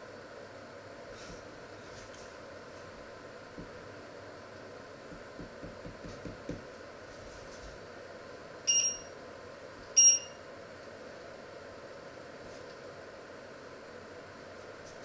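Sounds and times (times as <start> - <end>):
short electronic beeps: 8.7 - 9.1, 10.0 - 10.4.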